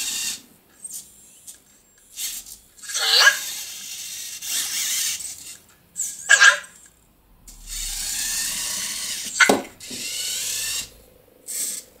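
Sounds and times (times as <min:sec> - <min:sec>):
small motors whirring: 0:00.0 - 0:12.0.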